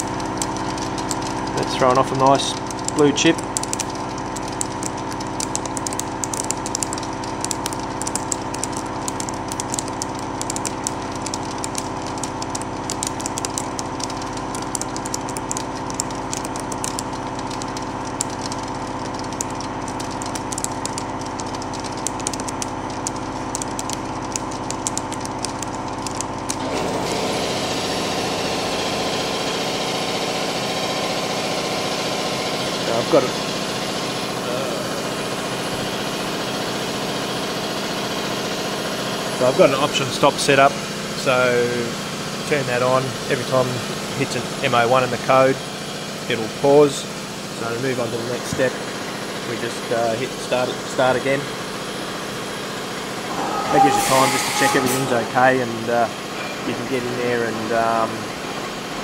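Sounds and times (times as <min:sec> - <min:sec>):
milling spindle whine: 0:00.0 - 0:29.2, 0:53.1 - 0:58.4.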